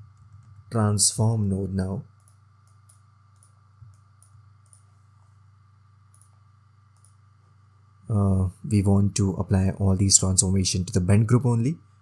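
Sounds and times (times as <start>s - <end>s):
low electrical hum: 0.0s - 12.0s
computer mouse clicks: 2.2s - 4.9s, 6.1s - 7.2s.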